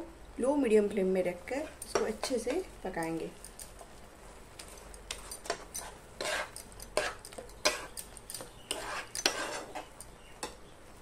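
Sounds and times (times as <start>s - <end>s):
metal spatula scraping a pan: 5.1s - 10.6s.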